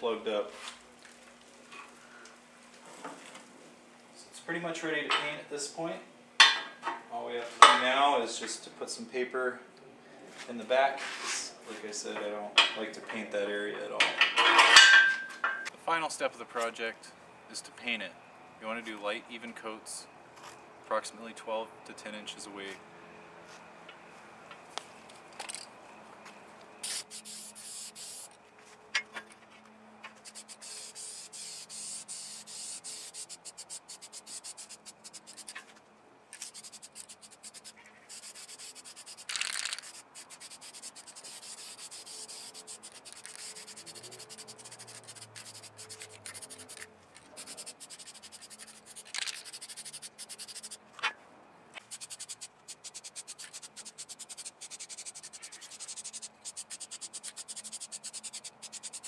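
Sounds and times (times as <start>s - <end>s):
spray-paint can hissing: 26.8s - 28.3s, 30.2s - 35.6s, 36.4s - 50.8s, 51.8s - 59.0s.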